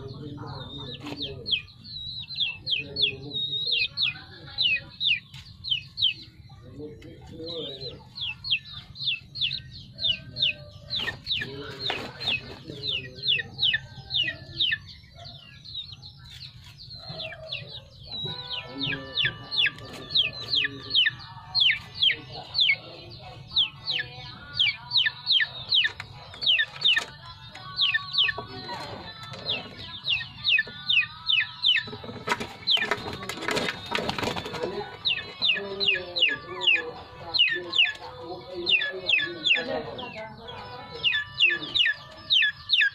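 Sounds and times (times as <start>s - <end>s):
chicks peeping: 0.0s - 42.9s
hen clucking: 0.0s - 42.9s
rustling and scratching: 10.9s - 12.9s.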